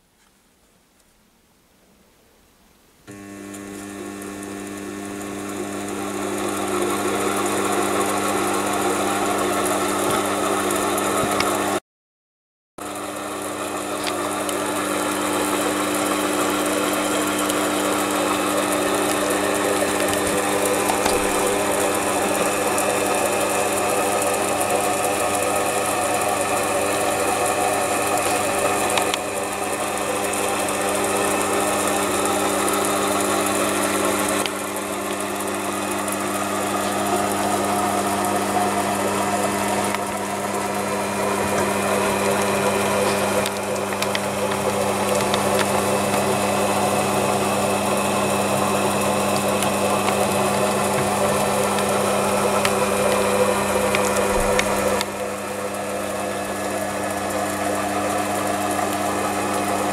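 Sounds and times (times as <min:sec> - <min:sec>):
lathe motor hum and whine: 0:03.1 - 0:11.8, 0:12.8 - 0:59.9
end mill cutting steel: 0:12.8 - 0:59.9.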